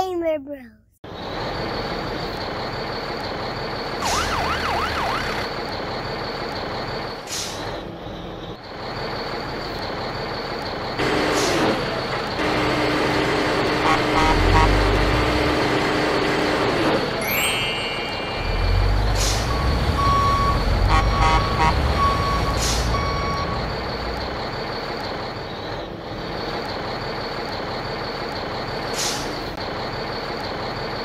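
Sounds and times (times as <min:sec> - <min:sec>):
heavy street traffic: 0:00.5 - 0:31.0
truck engine whining: 0:01.1 - 0:31.0
siren wailing: 0:04.0 - 0:05.5, 0:17.4 - 0:24.2.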